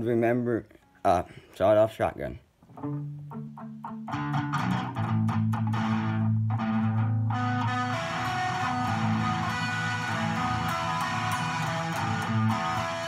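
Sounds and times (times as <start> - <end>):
electric guitar riff: 2.7 - 13.0.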